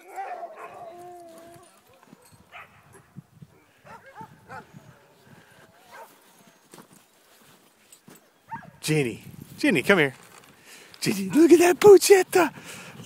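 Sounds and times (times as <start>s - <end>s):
faint dogs calling: 0.0s - 6.9s, 8.2s - 8.8s.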